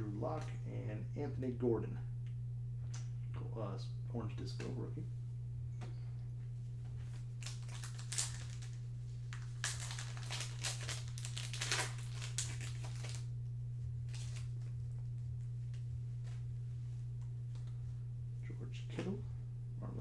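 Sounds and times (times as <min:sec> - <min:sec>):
low hum: 0:00.0 - 0:20.0
foil wrapper tearing and crinkling: 0:07.3 - 0:13.3, 0:14.1 - 0:14.7.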